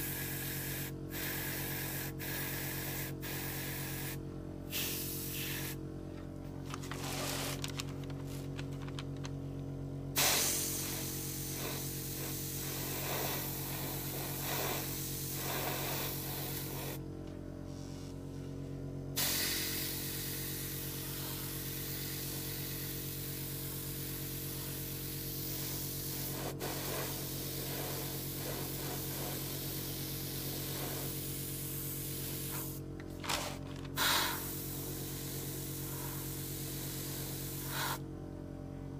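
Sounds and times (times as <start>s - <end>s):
airbrush spraying hiss: 0.0s - 5.8s, 10.2s - 17.0s, 19.2s - 32.8s, 34.0s - 38.0s
steady low hum: 0.0s - 38.9s.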